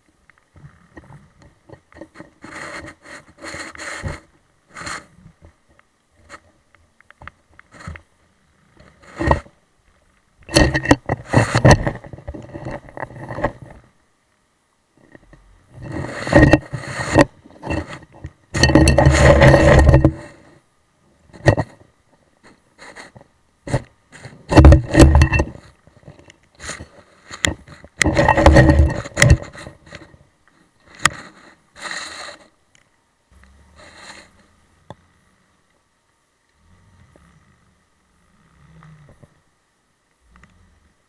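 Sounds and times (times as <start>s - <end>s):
scraping and knocking on camera housing: 8.8s - 9.6s, 10.5s - 13.8s, 15.8s - 20.4s, 21.3s - 21.9s, 22.8s - 30.2s.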